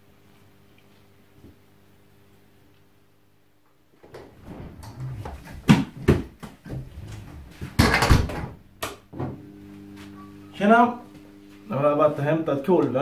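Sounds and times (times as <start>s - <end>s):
footsteps: 4.2s - 7.9s
loud burst of noise: 4.3s - 5.8s.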